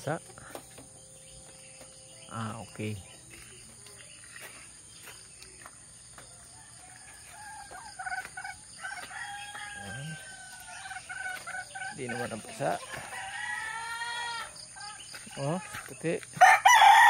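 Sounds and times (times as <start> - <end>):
rooster crowing: 6.2 - 14.6, 16.4 - 17.0.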